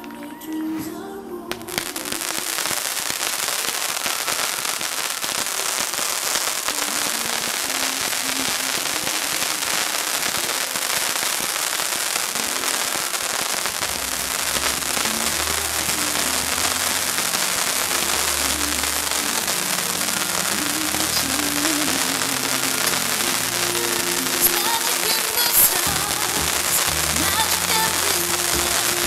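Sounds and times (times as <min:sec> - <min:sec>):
firework fountains crackling hiss: 0:01.5 - 0:29.0.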